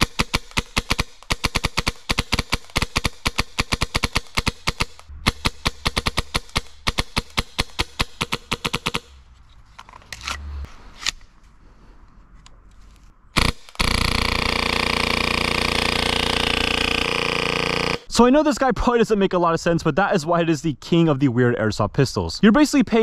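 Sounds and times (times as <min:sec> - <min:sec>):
airsoft pistol shots: 0:00.0 - 0:09.1, 0:13.4 - 0:18.0
full-auto airsoft burst: 0:00.0 - 0:09.2, 0:13.4 - 0:18.1.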